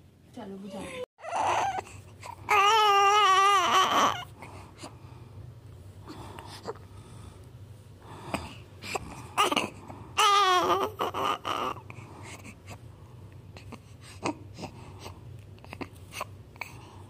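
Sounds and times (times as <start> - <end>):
newborn baby crying: 0.7 - 4.4, 9.0 - 11.9.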